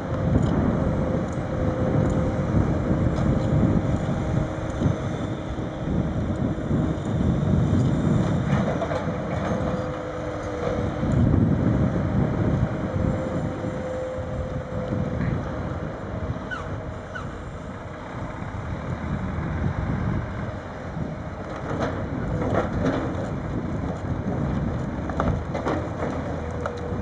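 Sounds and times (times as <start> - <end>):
diesel engine rumbling under load: 0.0 - 27.0
wind buffeting microphone: 0.0 - 27.0
faint hydraulic whine: 2.1 - 18.4.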